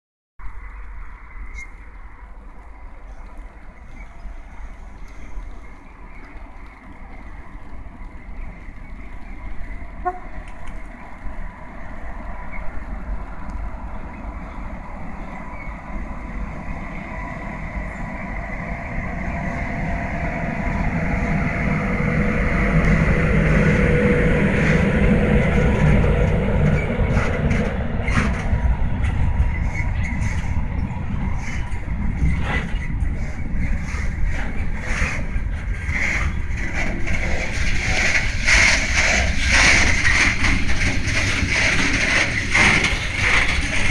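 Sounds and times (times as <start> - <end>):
freight train rumbling past: 0.4 - 43.9
wagon wheels clacking on rail joints: 22.6 - 43.9.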